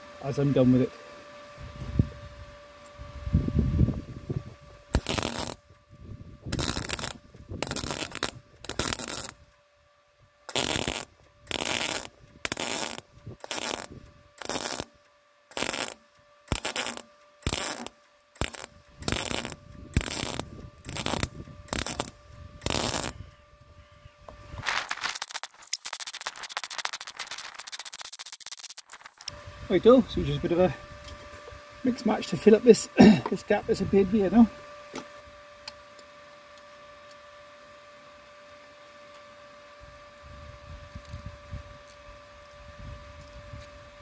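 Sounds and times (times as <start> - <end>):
faint steady hum: 0.0 - 44.0
welding arc crackle: 4.8 - 5.7, 6.5 - 9.4, 10.5 - 23.2, 24.6 - 29.4.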